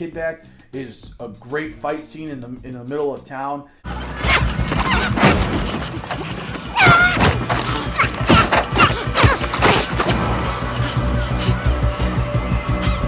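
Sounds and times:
strained shout: 4.0s - 10.6s
punches and body impacts: 4.2s - 10.3s.

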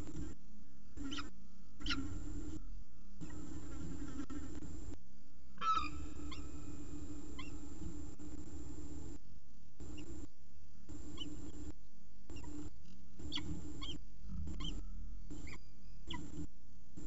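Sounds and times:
background hum and hiss: 0.0s - 17.0s
falcon chicks cheeping: 1.0s - 2.2s, 5.6s - 6.7s, 7.3s - 7.6s, 13.2s - 14.8s, 15.4s - 16.4s.

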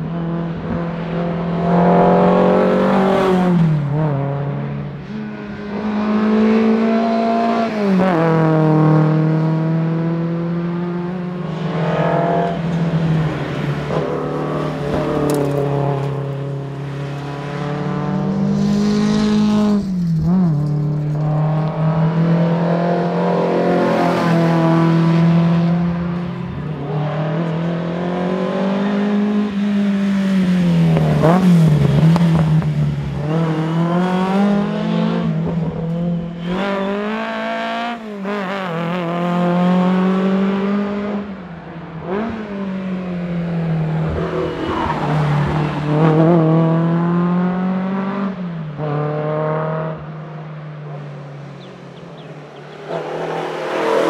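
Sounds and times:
car engine revving hard: 52.6s - 54.0s.

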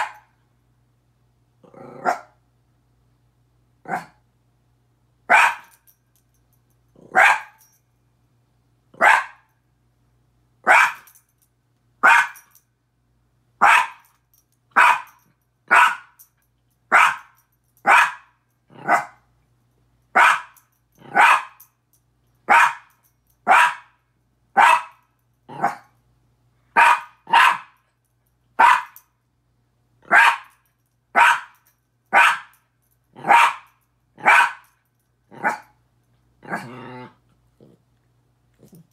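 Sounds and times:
dog barking: 0.0s - 0.3s, 2.0s - 2.4s, 3.9s - 4.2s, 5.3s - 5.8s, 7.0s - 7.6s, 9.0s - 9.5s, 10.6s - 11.1s, 12.0s - 12.5s, 13.6s - 14.1s, 14.8s - 16.2s, 16.9s - 19.2s, 20.2s - 21.6s, 22.5s - 22.9s, 23.5s - 24.0s, 24.6s - 25.8s, 26.8s - 27.8s, 28.6s - 29.0s, 30.1s - 30.6s, 31.2s - 32.6s, 33.2s - 34.7s, 35.4s - 35.7s.

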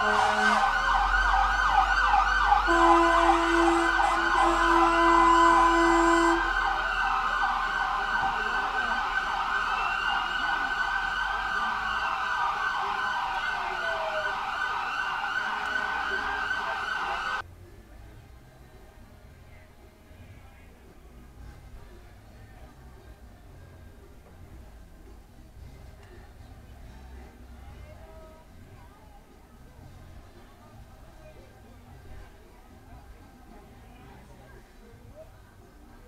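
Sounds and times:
horn blast: 0.0s - 1.2s, 2.5s - 7.0s
emergency sirens wailing: 0.0s - 17.4s.

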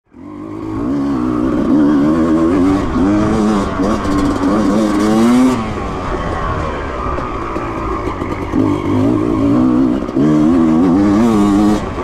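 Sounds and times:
dirt bike engine revving: 0.1s - 12.0s.

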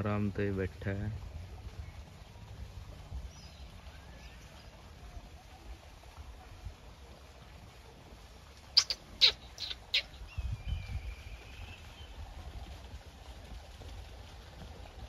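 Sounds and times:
sharp high-pitched animal calls: 8.8s - 10.3s.

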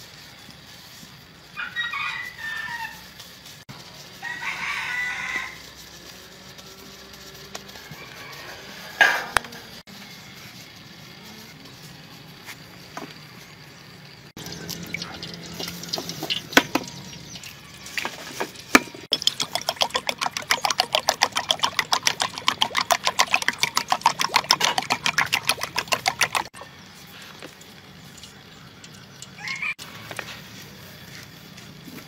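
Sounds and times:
hand squelching food in batter: 19.1s - 26.6s.

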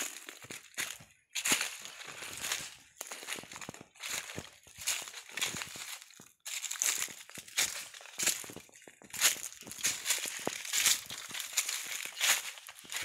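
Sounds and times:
footsteps crunching dry leaves: 0.0s - 13.0s.

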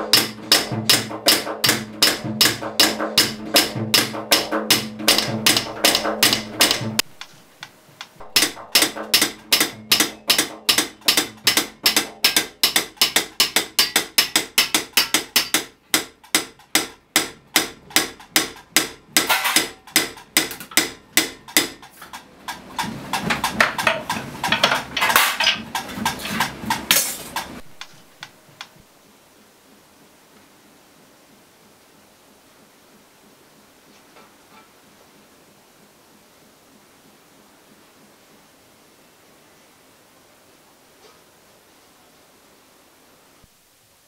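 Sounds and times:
hammers striking copper: 0.0s - 7.4s, 8.0s - 28.3s.

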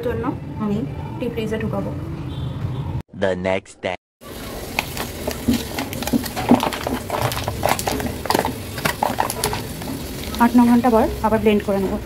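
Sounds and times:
aluminium foil crinkling: 4.3s - 10.6s.

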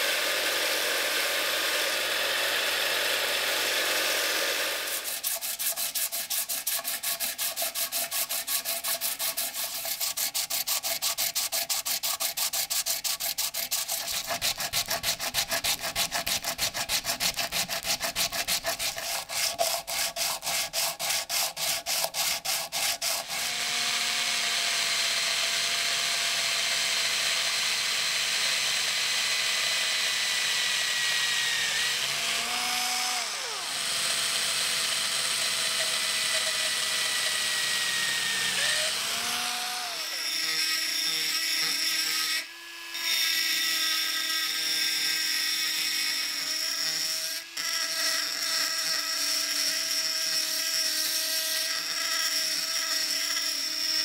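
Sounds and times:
electric drill whining: 0.0s - 5.3s, 23.2s - 54.0s
metal rubbed on sandpaper: 4.9s - 23.4s.

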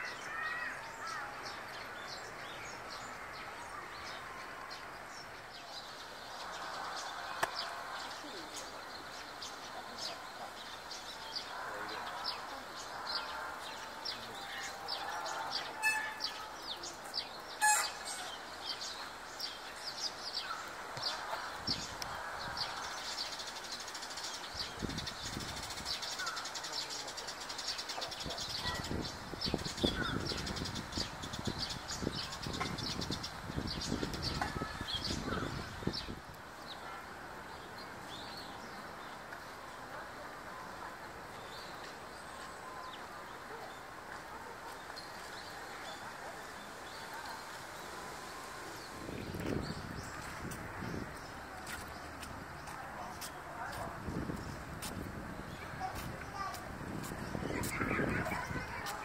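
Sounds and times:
sparrows chirping: 0.0s - 39.6s, 41.2s - 59.0s.

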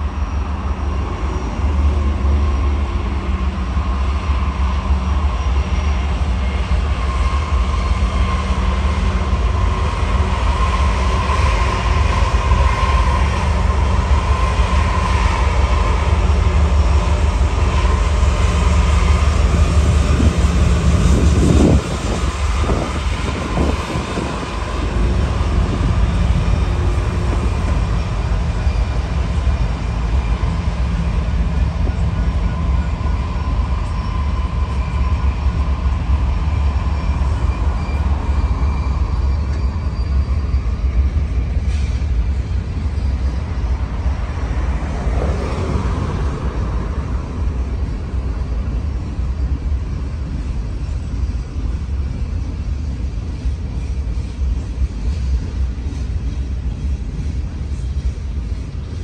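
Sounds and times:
locomotive engine rumble: 0.0s - 59.0s
rail and wheel noise: 0.0s - 59.0s.

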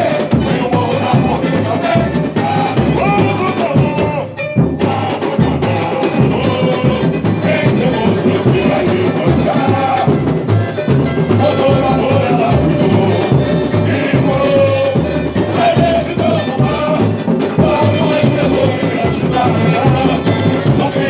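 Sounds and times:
deep drum pulse: 0.0s - 4.2s, 4.9s - 21.0s
men singing on microphones: 0.0s - 21.0s
samba percussion beat: 0.0s - 21.0s.

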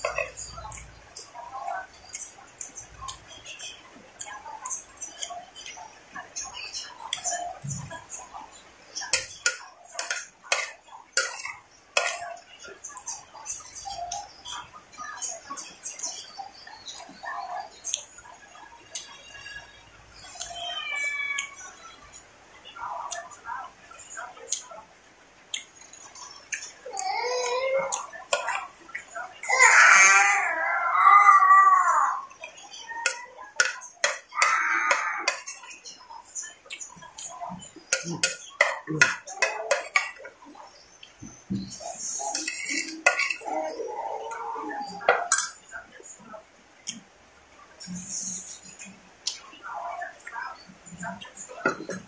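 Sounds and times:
metal spoon scraping a plate: 9.1s - 12.3s, 33.0s - 35.8s, 37.9s - 40.2s, 42.0s - 43.5s.

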